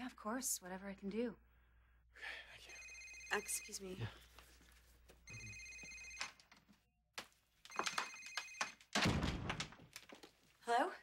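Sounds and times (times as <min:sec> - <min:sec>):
cell phone electronic ringtone: 0:02.7 - 0:04.0, 0:05.3 - 0:06.4, 0:07.7 - 0:08.8.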